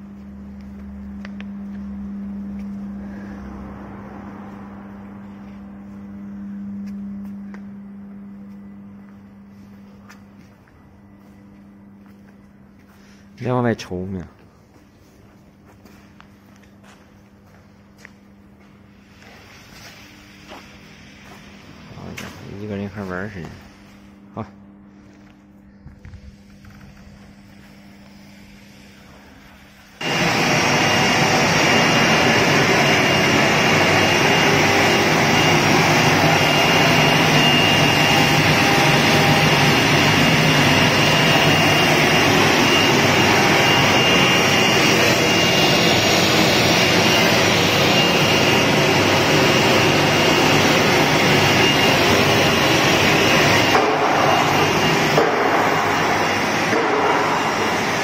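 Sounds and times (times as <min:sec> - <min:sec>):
low hum: 0:00.0 - 0:58.0
router machine with spindle whine: 0:30.0 - 0:58.0.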